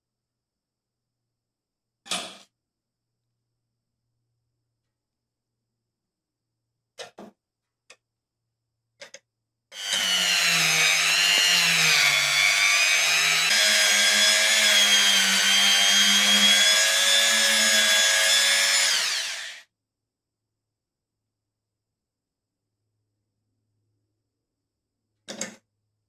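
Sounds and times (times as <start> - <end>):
rotary tool whine on metal: 9.8 - 19.6.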